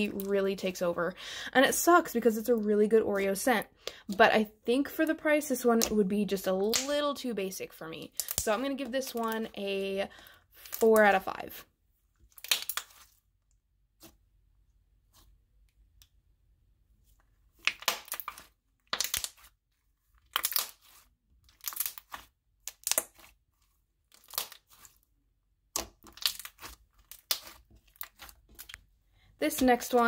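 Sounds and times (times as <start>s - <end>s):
slime squishing and crackling: 12.2s - 14.3s, 17.5s - 30.0s.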